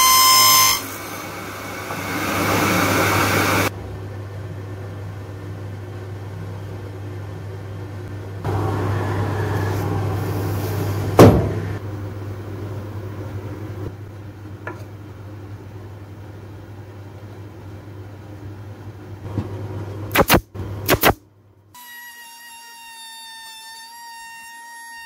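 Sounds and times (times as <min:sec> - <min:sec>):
loud sharp knock: 0:11.2 - 0:11.7
pneumatic nailer firing: 0:20.1 - 0:21.2.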